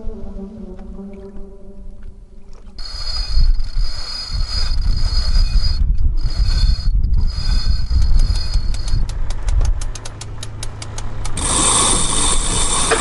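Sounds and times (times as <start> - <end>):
music: 0.0 - 2.5
wind rumble on microphone: 0.0 - 13.0
line squealing through pulley blocks: 2.8 - 9.1, 11.4 - 13.0.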